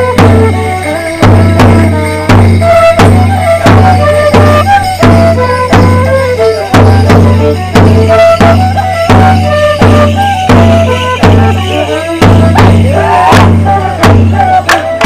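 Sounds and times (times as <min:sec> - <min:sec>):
fiddle playing folk dance tune: 0:00.0 - 0:15.0.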